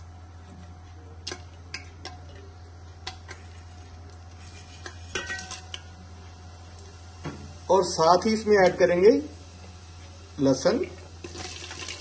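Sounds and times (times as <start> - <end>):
faint oil sizzle: 1.3 - 12.0
seeds clinking against metal: 4.4 - 5.9.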